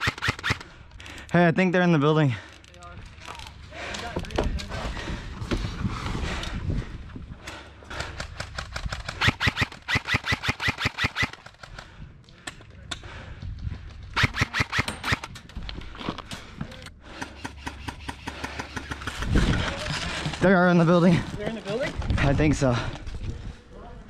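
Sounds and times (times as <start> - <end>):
airsoft rifles firing bursts: 0.0 - 0.6, 8.0 - 11.7, 14.2 - 15.2.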